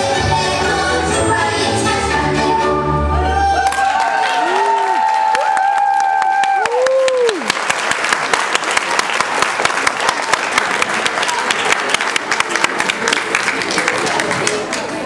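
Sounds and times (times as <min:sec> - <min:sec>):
folk song tune: 0:00.0 - 0:03.6
audience applauding: 0:03.5 - 0:15.0.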